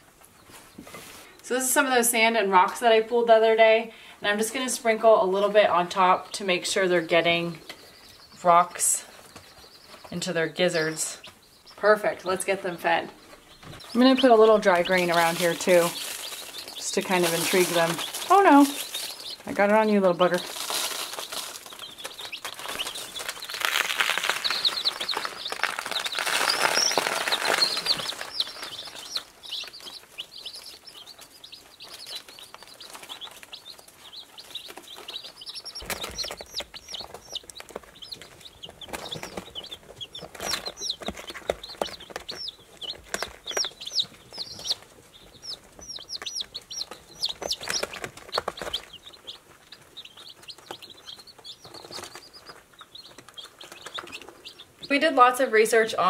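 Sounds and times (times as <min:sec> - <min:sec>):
chicks peeping: 0:00.0 - 0:56.0
paper rustling and handling: 0:14.9 - 0:19.4, 0:20.4 - 0:29.2.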